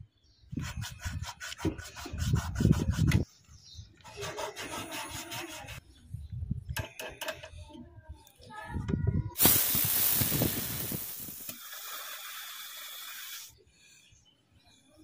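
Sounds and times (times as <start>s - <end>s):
file rasping on copper tubing: 4.0s - 5.8s.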